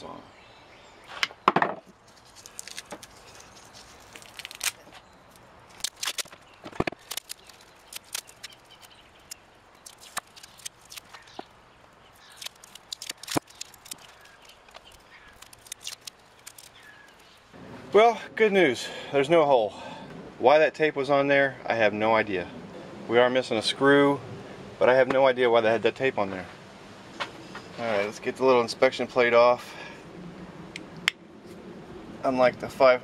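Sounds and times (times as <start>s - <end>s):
tape being peeled off metal: 2.0s - 11.5s, 12.1s - 17.5s.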